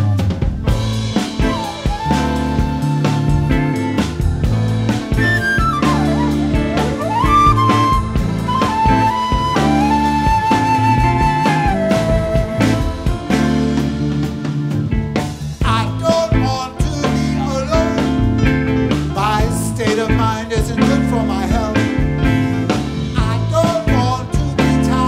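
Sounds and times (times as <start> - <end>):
live band music: 0.0 - 25.0
flute melody: 0.7 - 15.3
man singing: 15.6 - 18.5, 19.1 - 22.3, 23.1 - 25.0.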